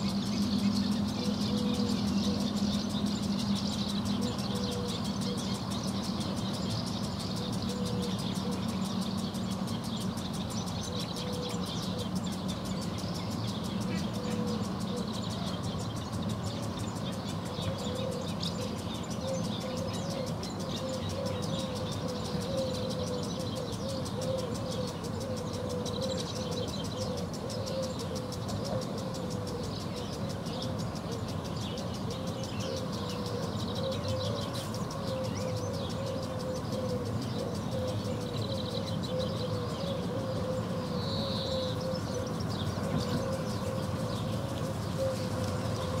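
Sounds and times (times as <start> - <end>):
wavering mid-pitched drone: 0.0 - 15.8, 17.4 - 46.0
distant traffic hum: 0.0 - 46.0
swallows twittering: 0.0 - 46.0.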